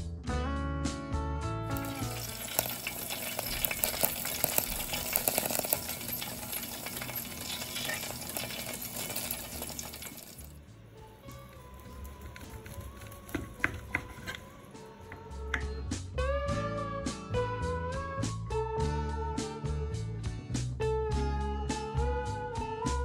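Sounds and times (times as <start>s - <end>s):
pork belly sizzling and crackling: 1.7s - 15.5s.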